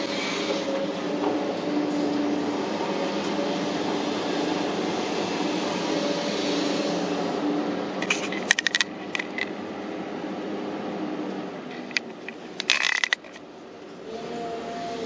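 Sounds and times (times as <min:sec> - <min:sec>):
excavator diesel engine and hydraulics: 0:00.0 - 0:15.0
sharp clacks and rattles: 0:08.0 - 0:09.6, 0:11.7 - 0:13.4.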